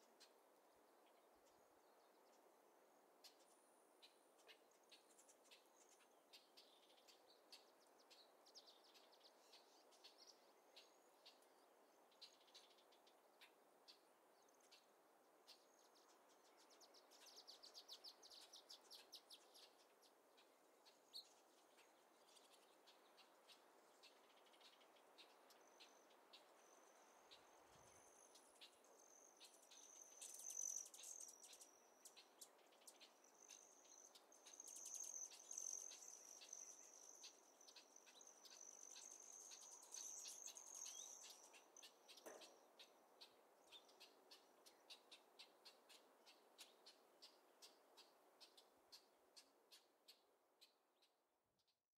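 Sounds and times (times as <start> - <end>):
soft hiss: 0.0 - 50.5
bird chirps: 3.2 - 14.9, 15.5 - 51.8
bird trill: 24.3 - 50.2.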